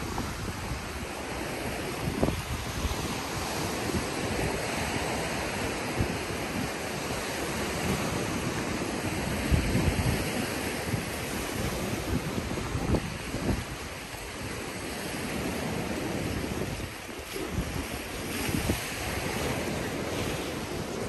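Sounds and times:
steady rushing noise: 0.0s - 3.8s
wind buffeting microphone: 0.0s - 21.0s.

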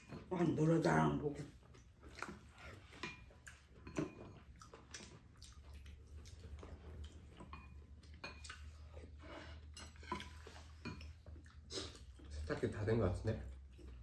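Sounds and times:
sipping and chewing: 1.5s - 12.6s.

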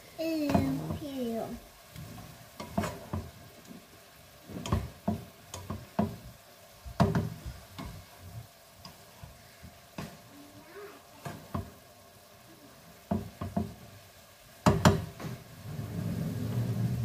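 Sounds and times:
stir-fry sizzling: 0.0s - 17.0s
spatula scraping a frying pan: 2.0s - 3.3s, 4.4s - 6.2s.

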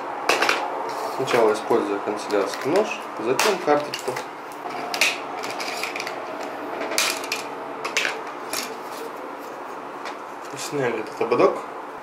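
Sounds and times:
plastic clips snapping: 2.2s - 4.3s, 4.9s - 8.7s.

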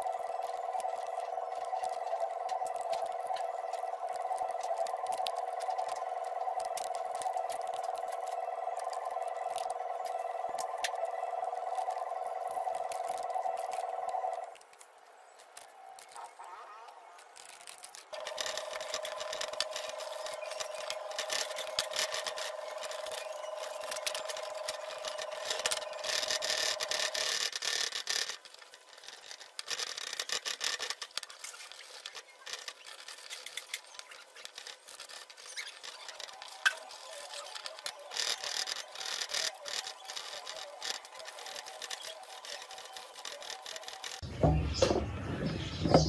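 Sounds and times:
faint steady whine: 0.0s - 16.6s.

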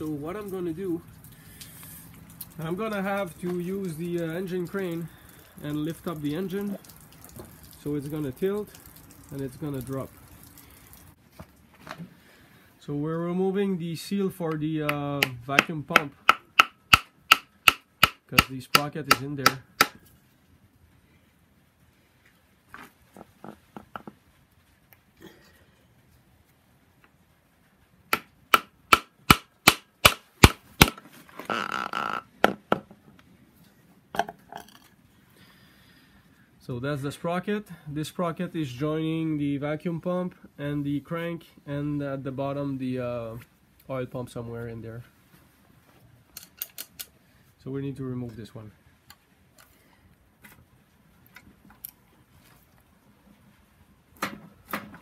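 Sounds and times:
hand tool tapping metal: 14.9s - 20.0s.

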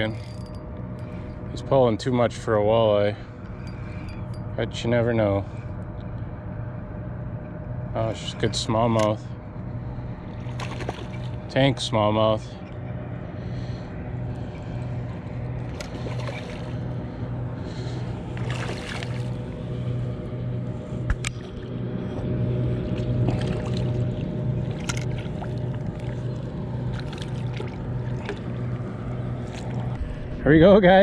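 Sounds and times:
boat motor humming: 0.0s - 31.0s
fish splashing at surface: 10.5s - 11.3s, 18.4s - 19.4s, 23.0s - 28.6s.

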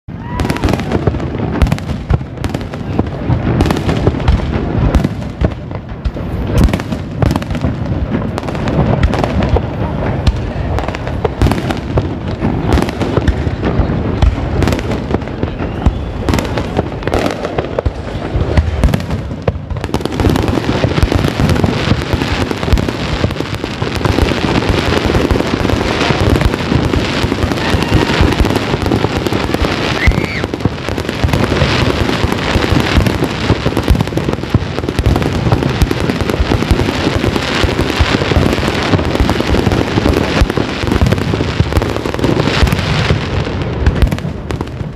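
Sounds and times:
fireworks banging and crackling: 0.0s - 44.9s.

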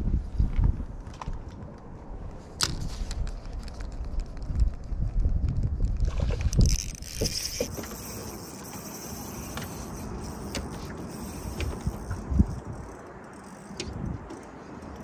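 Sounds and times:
boat background noise: 5.9s - 15.0s.

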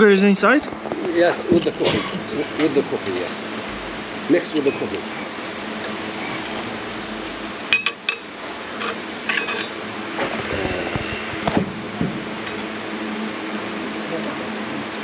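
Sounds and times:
porcelain cups clinking: 7.7s - 9.8s.

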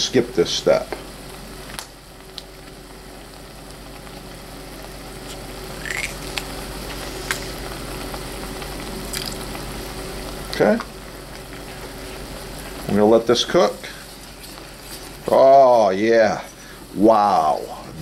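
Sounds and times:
sauce sizzling in a pot: 0.0s - 18.0s.

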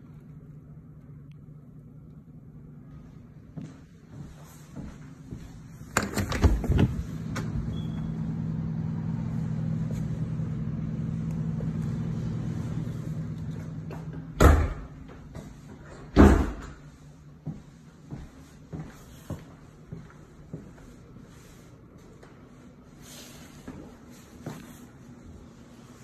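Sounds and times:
low outdoor hum: 0.0s - 26.0s
door shutting thump: 14.4s - 14.9s.

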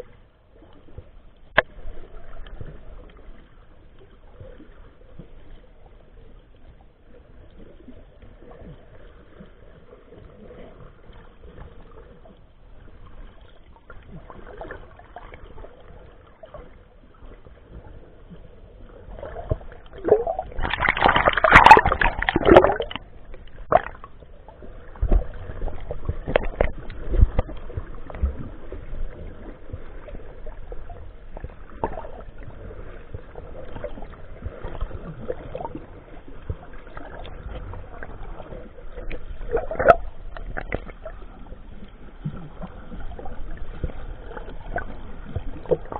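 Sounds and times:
muffled underwater sloshing: 0.0s - 45.9s
rush of water: 19.1s - 45.9s.

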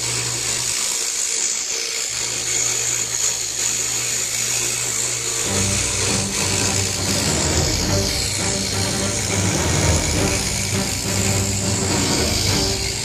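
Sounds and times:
scroll saw buzzing: 0.0s - 13.0s
music: 5.5s - 13.0s.

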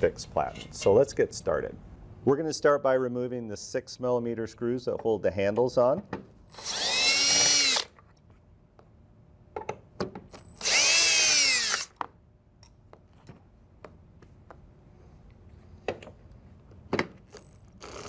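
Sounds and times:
cordless drill whining: 6.5s - 7.9s, 10.4s - 11.9s.

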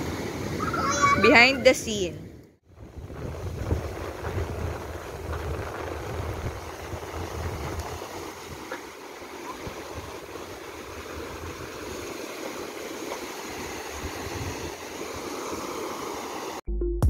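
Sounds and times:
surf washing up a beach: 0.0s - 16.6s
wind buffeting the microphone: 2.7s - 8.8s, 9.5s - 12.2s, 13.6s - 14.9s.

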